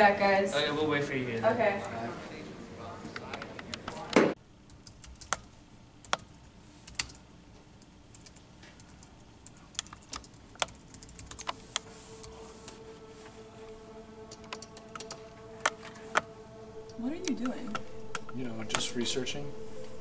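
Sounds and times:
keyboard typing: 4.7 - 7.2, 7.8 - 12.8, 14.2 - 18.9.

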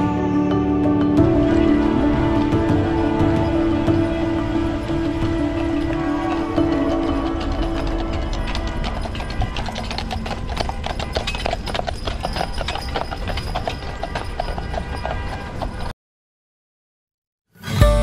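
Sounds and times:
low rumble: 1.1 - 11.0
horse hooves clip-clopping on pavement: 1.2 - 15.9.

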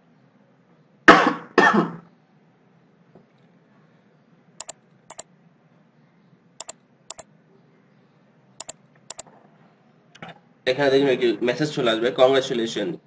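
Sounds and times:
computer double clicks: 4.6 - 5.2, 6.6 - 7.2, 8.6 - 9.3.

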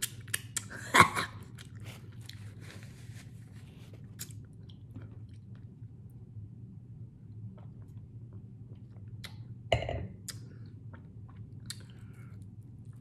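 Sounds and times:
person chewing: 0.0 - 0.8, 1.4 - 5.9, 10.2 - 13.0
steady low hum: 0.0 - 13.0.

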